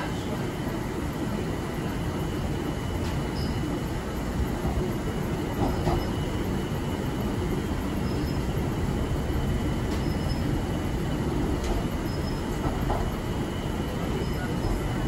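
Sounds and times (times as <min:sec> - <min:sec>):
train wheels and motors rumbling: 0:00.0 - 0:15.0
high wheel squeaks: 0:09.9 - 0:10.7, 0:12.0 - 0:12.6.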